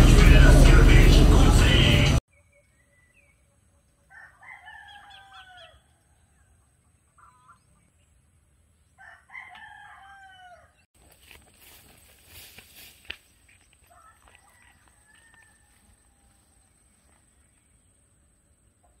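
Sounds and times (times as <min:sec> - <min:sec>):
faint rooster crowing: 0:04.0 - 0:07.5, 0:09.0 - 0:10.9, 0:13.8 - 0:16.8.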